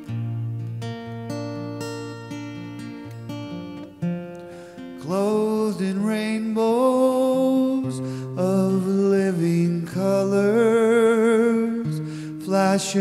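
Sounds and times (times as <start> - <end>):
strummed acoustic guitar: 0.0 - 13.0
man singing slow melody: 4.8 - 13.0.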